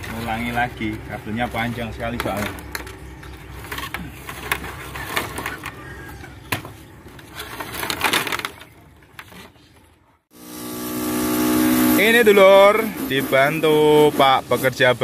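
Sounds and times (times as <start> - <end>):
rustling: 0.0 - 10.0.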